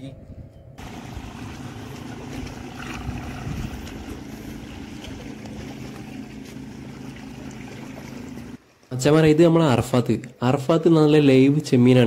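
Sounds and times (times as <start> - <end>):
wind: 0.0 - 12.0
boat motor running: 0.8 - 8.6
waves: 0.8 - 9.0.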